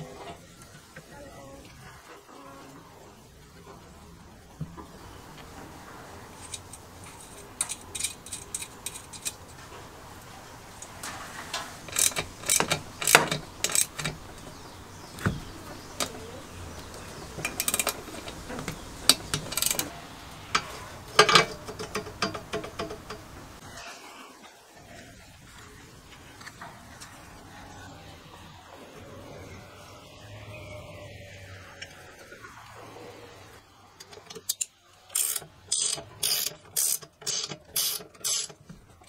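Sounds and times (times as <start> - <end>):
metal parts clinking: 6.4 - 9.5, 34.4 - 38.6
socket ratchet clicking: 34.4 - 38.6.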